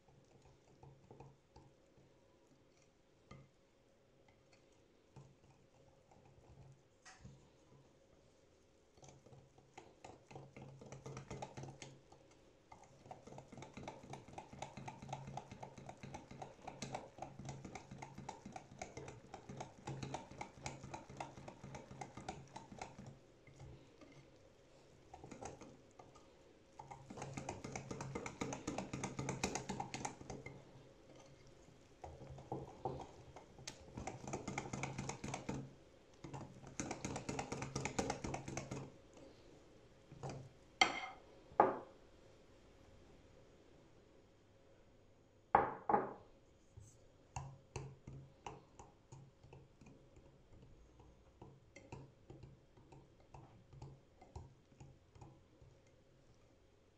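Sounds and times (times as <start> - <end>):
utensil clicking against bowl: 26.8 - 30.6, 32.4 - 38.9.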